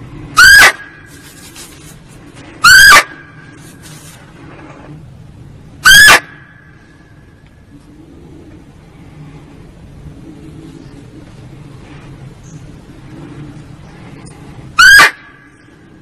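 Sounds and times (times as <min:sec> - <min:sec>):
low background hum: 0:00.0 - 0:16.0
deer bark call: 0:00.4 - 0:00.9, 0:02.6 - 0:03.2, 0:05.8 - 0:06.4, 0:14.8 - 0:15.4.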